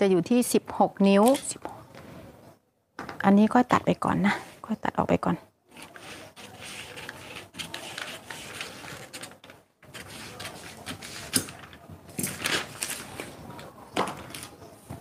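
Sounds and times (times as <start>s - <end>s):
paper rustling: 5.7s - 14.6s
scissors snipping paper: 5.8s - 13.1s.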